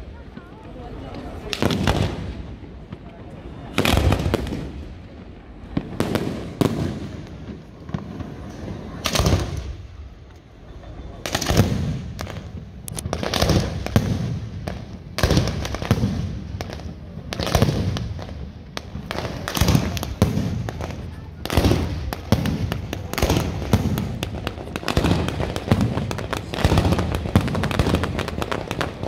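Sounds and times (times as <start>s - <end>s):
fireworks bangs: 0.0s - 29.0s.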